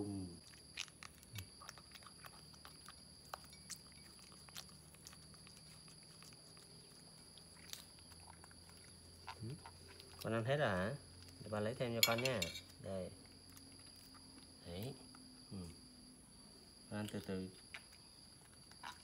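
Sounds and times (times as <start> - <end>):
monkey chewing wetly: 0.4 - 11.6, 13.2 - 15.4.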